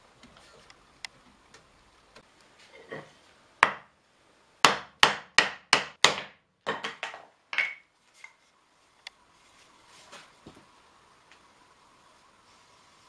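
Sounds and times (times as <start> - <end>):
hammer striking wooden block: 3.6 - 3.9, 4.6 - 7.8.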